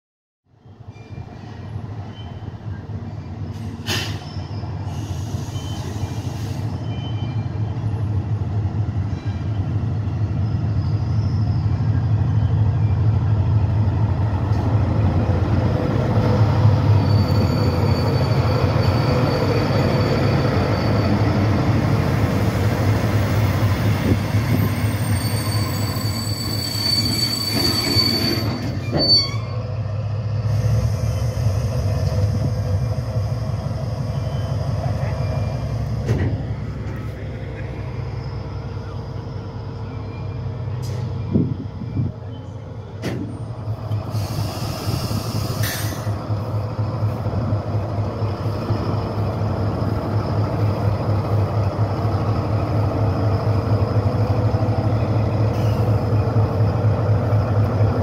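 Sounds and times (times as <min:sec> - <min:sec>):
diesel locomotive engine drone: 0:00.5 - 0:58.0
high brake squeal: 0:00.8 - 0:08.2, 0:09.1 - 0:13.2, 0:16.6 - 0:21.6, 0:24.0 - 0:29.7, 0:34.0 - 0:35.9, 0:38.0 - 0:46.2, 0:54.9 - 0:56.3.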